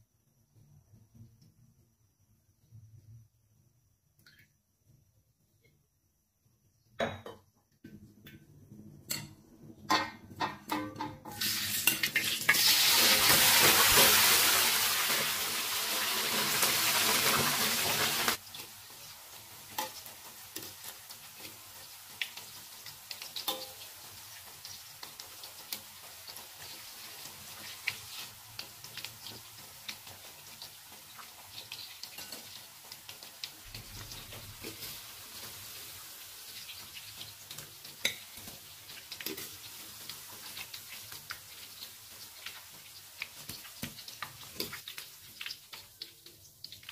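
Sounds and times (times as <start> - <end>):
potatoes sizzling in hot oil: 9.9 - 46.9
deep-frying crackle: 10.4 - 46.9.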